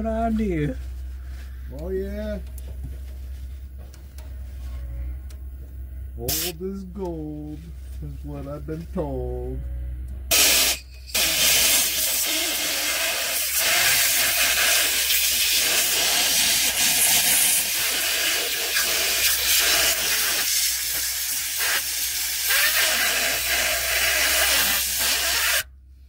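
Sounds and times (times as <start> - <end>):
compressed air hissing: 6.2 - 6.6, 10.3 - 25.7.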